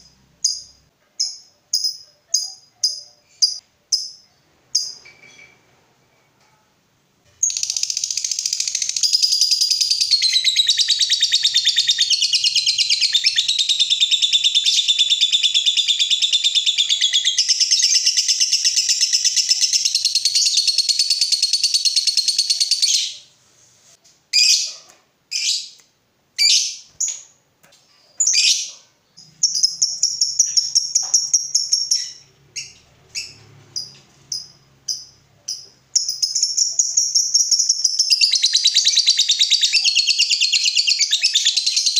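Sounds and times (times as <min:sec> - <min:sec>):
lovebird chattering trill: 0:07.4 - 0:23.2.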